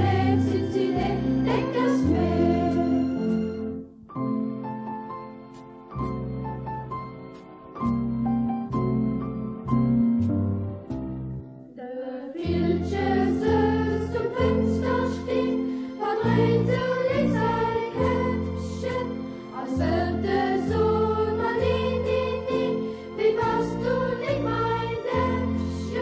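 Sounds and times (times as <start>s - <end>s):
choir singing: 0.0s - 3.7s, 12.3s - 26.0s
instrumental accompaniment: 0.0s - 11.8s, 12.4s - 26.0s.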